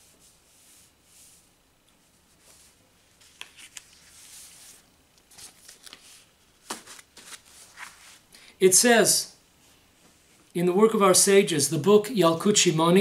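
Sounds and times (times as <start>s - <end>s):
paper rustling: 2.3s - 8.2s.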